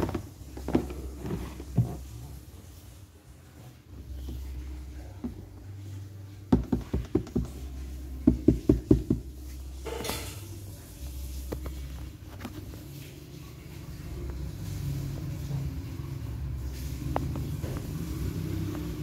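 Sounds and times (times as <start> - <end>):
hollow knocks on plastic casing: 6.5 - 7.6, 8.2 - 9.3.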